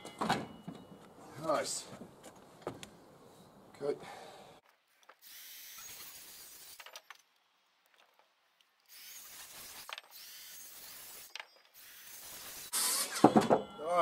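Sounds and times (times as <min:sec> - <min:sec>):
circular saw cutting timber: 0:08.9 - 0:13.4.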